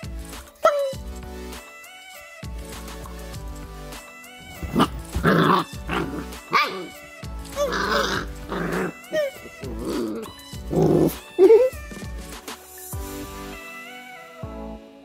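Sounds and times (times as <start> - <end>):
background music: 0.0 - 15.0
puppy play-growling: 4.4 - 12.3.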